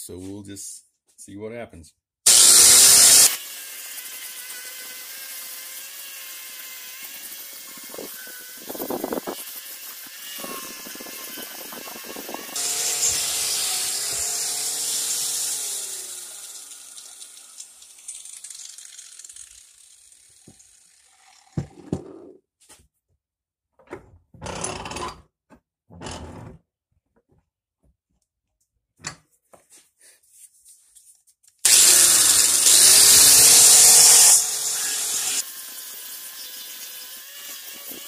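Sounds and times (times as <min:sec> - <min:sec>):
power tool motor whine: 0:02.3 - 0:21.4, 0:31.7 - 0:38.0.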